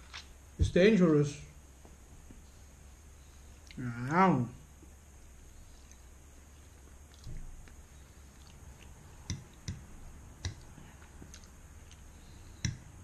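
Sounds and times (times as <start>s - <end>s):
wet mouth clicks while chewing: 5.8s - 12.8s.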